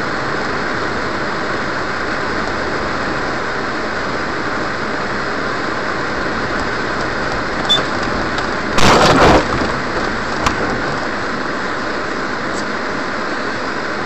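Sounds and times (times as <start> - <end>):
car road and engine noise: 0.0 - 14.0
loud rumbling burst: 6.3 - 11.4.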